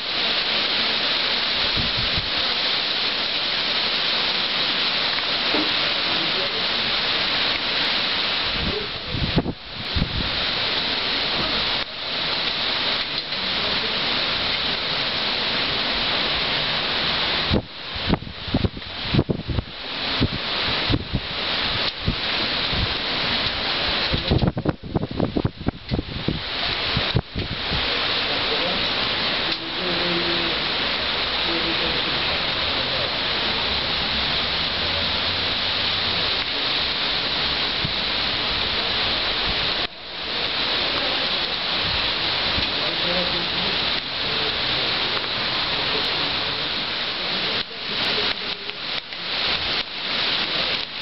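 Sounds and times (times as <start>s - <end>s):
heavy rain hissing: 0.0s - 51.0s
wind buffeting microphone: 1.6s - 2.3s, 8.4s - 10.7s, 17.4s - 28.2s.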